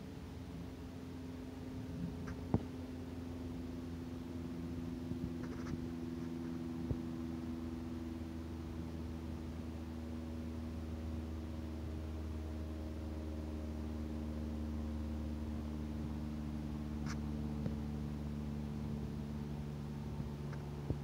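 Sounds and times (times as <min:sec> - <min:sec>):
low mechanical hum with tones: 0:00.0 - 0:21.0.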